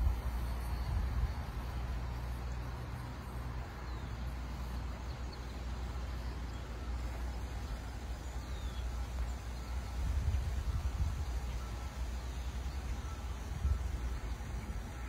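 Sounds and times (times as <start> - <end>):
wind buffeting microphone: 0.0 - 3.0, 7.5 - 15.0.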